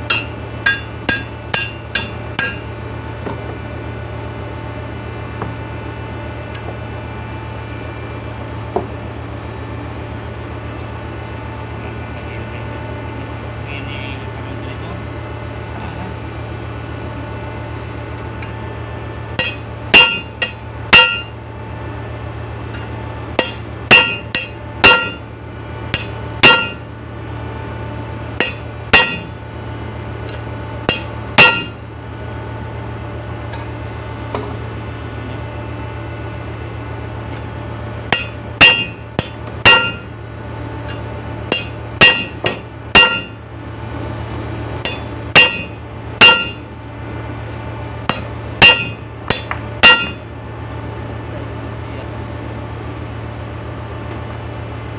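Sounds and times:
steady low hum: 0.0s - 54.9s
hammer striking steel: 0.1s - 2.7s, 19.4s - 21.4s, 23.4s - 25.3s, 25.9s - 26.9s, 28.4s - 29.4s, 30.3s - 31.8s, 38.1s - 40.2s, 40.9s - 43.4s, 44.8s - 46.7s, 48.1s - 50.3s.

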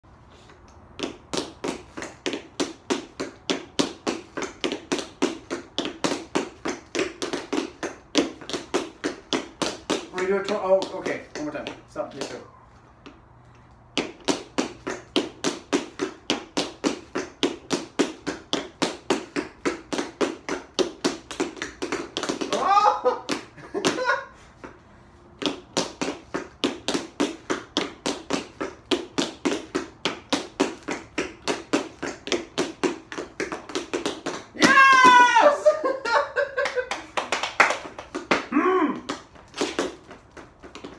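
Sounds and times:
tap shoes tapping: 0.7s - 12.4s, 13.0s - 24.8s, 25.4s - 40.9s
vocal exclamation: 22.5s - 23.2s, 38.5s - 39.2s.

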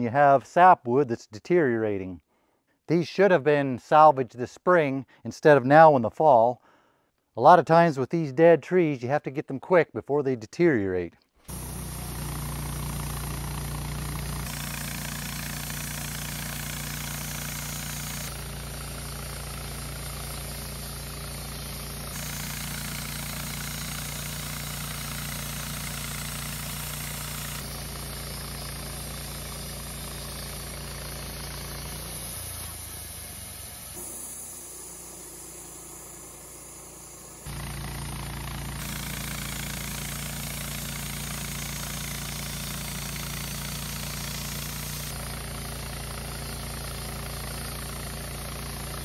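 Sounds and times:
engine running: 11.5s - 49.0s.

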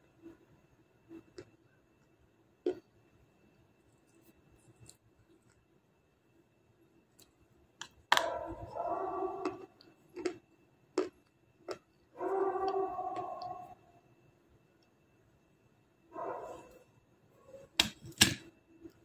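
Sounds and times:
crunching clicks of chewing: 1.2s - 3.0s, 4.0s - 5.7s, 7.1s - 13.8s.

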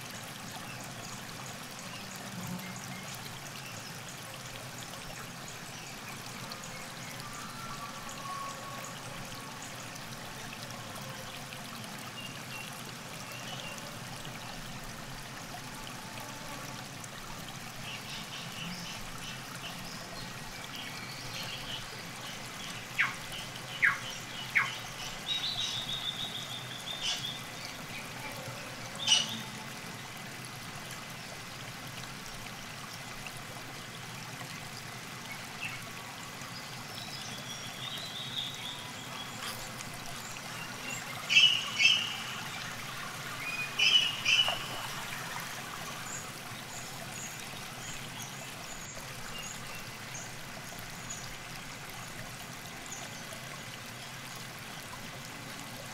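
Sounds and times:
river water trickling: 0.0s - 55.9s
songbirds chirping: 17.5s - 33.0s, 33.8s - 52.2s
sharp bird calls: 41.2s - 42.5s, 43.6s - 45.0s.

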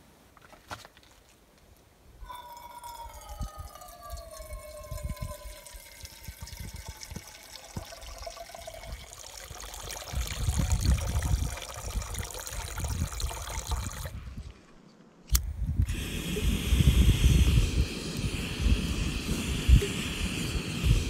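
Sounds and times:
water poured into cup: 2.3s - 14.2s.

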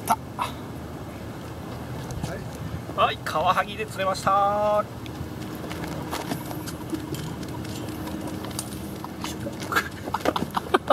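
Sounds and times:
footsteps on concrete: 5.0s - 10.6s.

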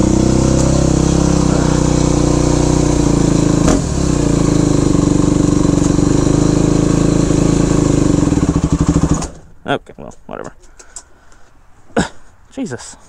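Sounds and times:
motorcycle engine running: 0.0s - 9.5s.

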